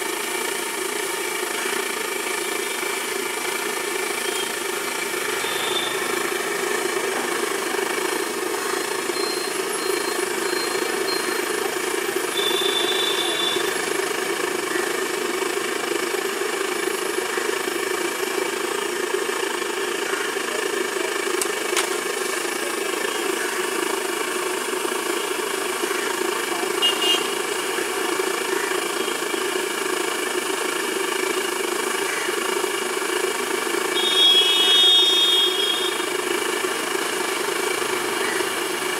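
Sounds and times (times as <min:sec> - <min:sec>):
street traffic: 0:00.0 - 0:38.9
high beeps: 0:09.1 - 0:11.6.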